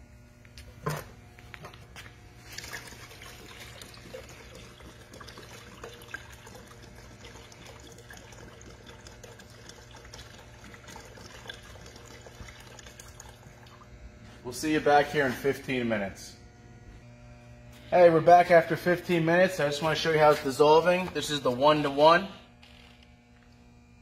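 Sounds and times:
water pouring into a tub: 0:02.4 - 0:13.9.

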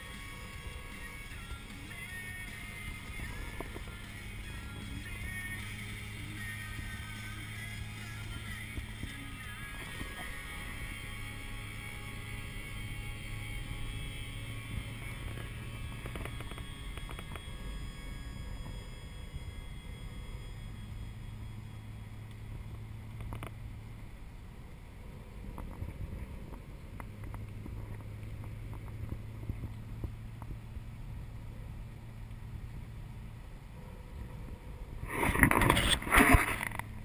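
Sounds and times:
car engine and tyre drone: 0:00.0 - 0:37.0
camera handling scrape: 0:35.1 - 0:36.9.

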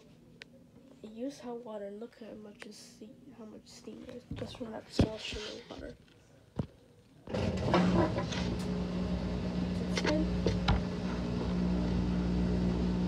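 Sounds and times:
washing machine humming: 0:07.2 - 0:13.0.

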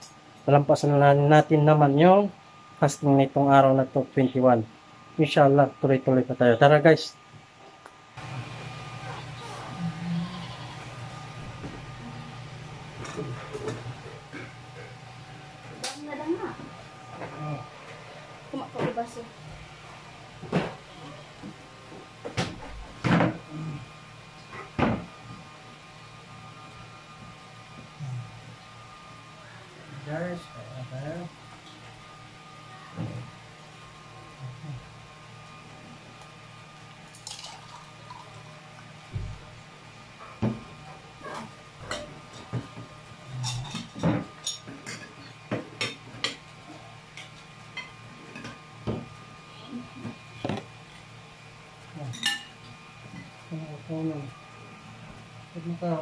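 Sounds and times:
faint steady hum: 0:00.0 - 0:56.0
dishes and cutlery clinking: 0:52.1 - 0:52.6.

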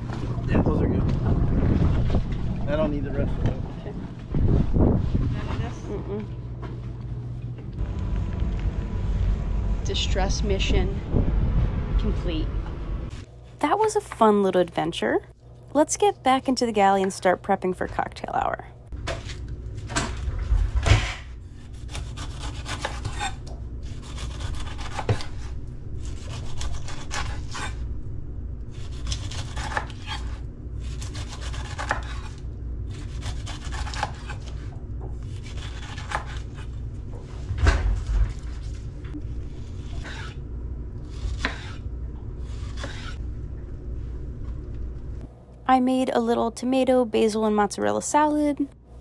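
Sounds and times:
low hum: 0:00.0 - 0:49.0
knife cutting pineapple rind: 0:21.5 - 0:27.8, 0:28.7 - 0:36.8, 0:42.4 - 0:43.2.

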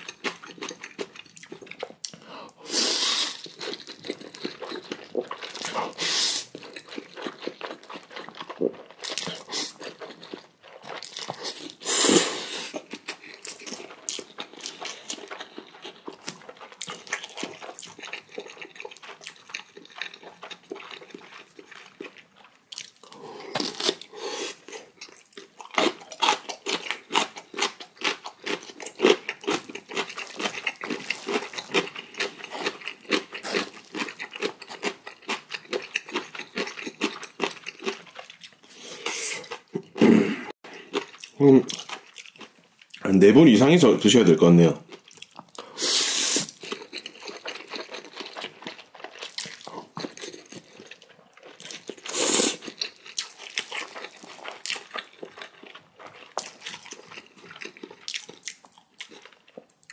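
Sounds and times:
person slurping noodles: 0:02.6 - 0:03.4, 0:05.6 - 0:06.6, 0:11.5 - 0:12.9, 0:38.7 - 0:40.6, 0:45.7 - 0:46.6, 0:52.0 - 0:52.7
wet chewing clicks: 0:12.7 - 0:23.9.

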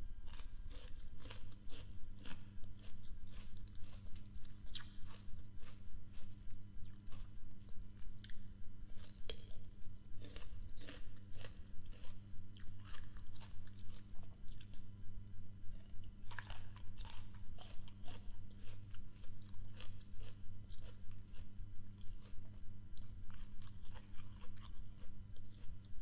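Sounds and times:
crunching and chewing fruit: 0:00.0 - 0:26.0
steady low hum: 0:00.0 - 0:26.0.

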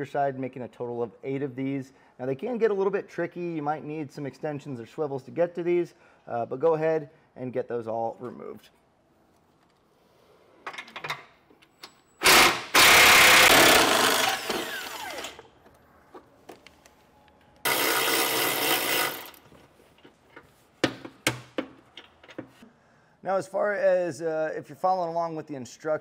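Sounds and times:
cordless power tool spinning: 0:12.2 - 0:15.5, 0:17.7 - 0:19.4.

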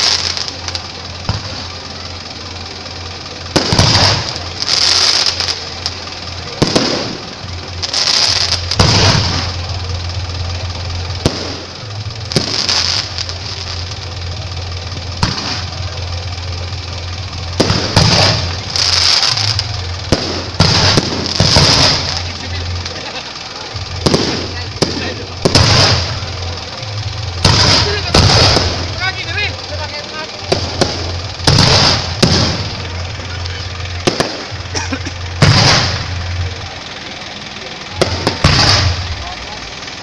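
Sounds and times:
firework shells bursting: 0:00.0 - 0:40.0
low hum: 0:00.0 - 0:40.0.

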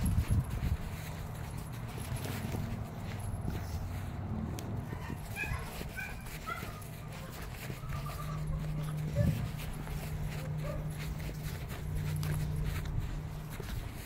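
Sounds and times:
rustling: 0:00.0 - 0:14.0
steady low hum: 0:00.0 - 0:14.0
puppy panting: 0:00.4 - 0:14.0
puppy whimpering: 0:04.9 - 0:11.4.

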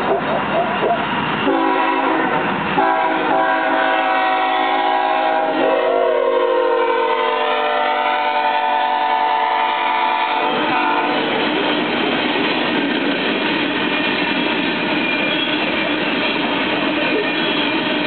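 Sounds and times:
locomotive air horn blast: 0:01.4 - 0:11.3.

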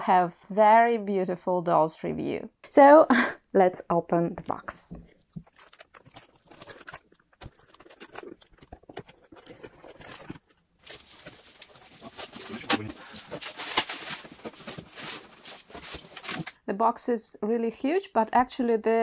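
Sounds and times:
cardboard and bubble wrap rustling: 0:05.0 - 0:16.6.

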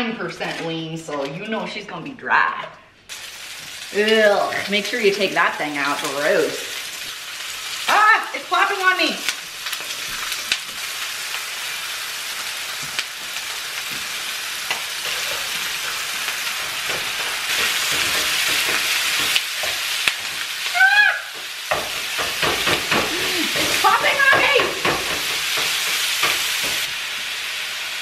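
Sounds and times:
meat sizzling in a frying pan: 0:03.1 - 0:28.0
spatula knocking and scraping pan: 0:13.8 - 0:20.6, 0:21.3 - 0:26.9.

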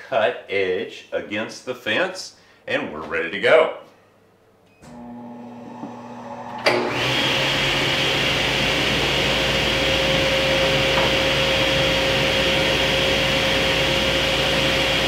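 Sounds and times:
woodshop machine whining: 0:04.9 - 0:15.0.

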